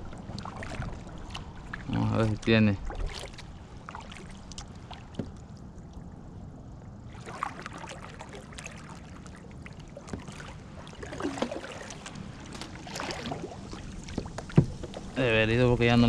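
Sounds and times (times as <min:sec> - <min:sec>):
water splashes: 0:00.0 - 0:06.2, 0:07.0 - 0:16.0
small knocks of float line: 0:00.1 - 0:05.6, 0:10.0 - 0:15.2.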